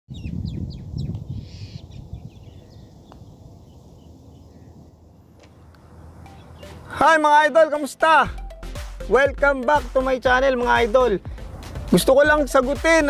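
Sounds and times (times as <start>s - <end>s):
wind rumble on microphone: 0.1s - 5.2s
small birds chirping: 0.1s - 7.0s.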